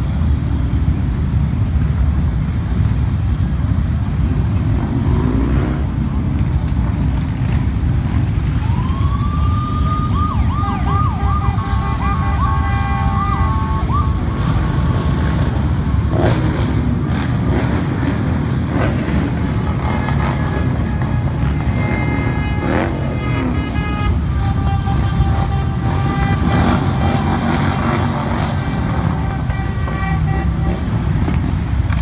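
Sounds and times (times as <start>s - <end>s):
motorcycle and car engines passing: 0.0s - 32.0s
emergency siren yelping: 8.5s - 14.9s.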